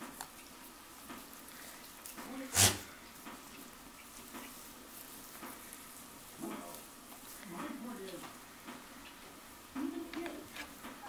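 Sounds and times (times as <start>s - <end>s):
rustling in straw: 0.6s - 8.6s
goat kid noisy sound: 2.4s - 3.2s.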